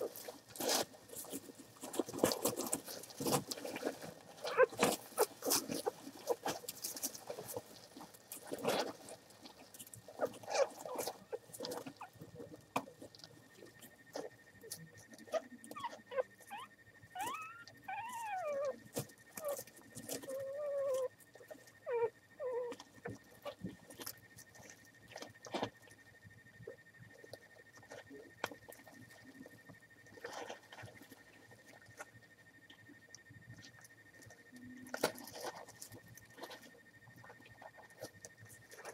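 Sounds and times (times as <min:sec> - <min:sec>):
puppies squeaking and whining: 0:04.4 - 0:06.4, 0:15.3 - 0:18.8, 0:19.4 - 0:21.1, 0:21.8 - 0:23.2.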